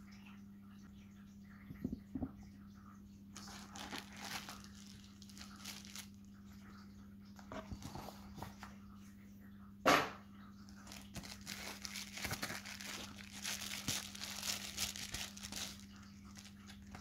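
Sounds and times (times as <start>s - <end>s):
bubble wrap crinkling: 3.4s - 6.4s, 10.7s - 17.0s.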